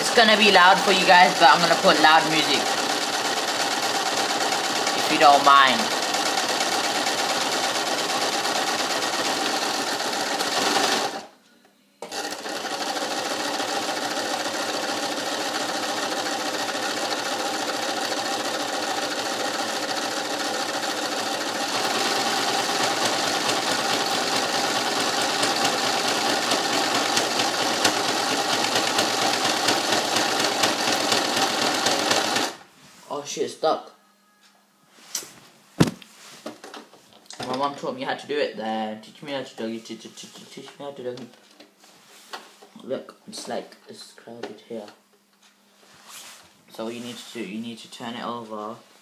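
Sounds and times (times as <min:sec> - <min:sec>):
electric sewing machine running: 0:00.0 - 0:11.3, 0:12.0 - 0:32.6.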